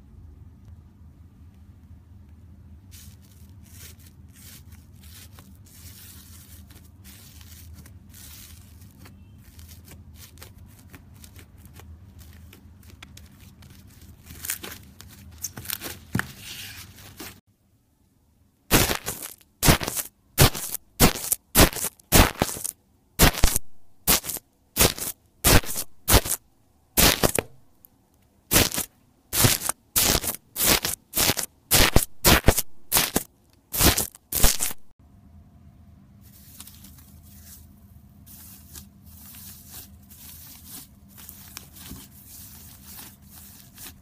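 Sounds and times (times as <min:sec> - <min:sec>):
low steady hum: 0:00.0 - 0:44.0
tool pressing crackling slime: 0:18.7 - 0:26.4, 0:27.0 - 0:27.6, 0:28.5 - 0:34.8.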